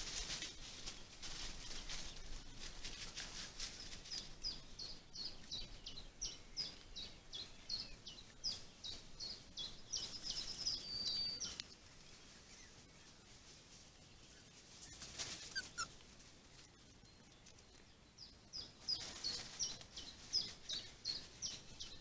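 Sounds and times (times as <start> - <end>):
small songbird singing: 3.7 - 13.2, 16.6 - 22.0.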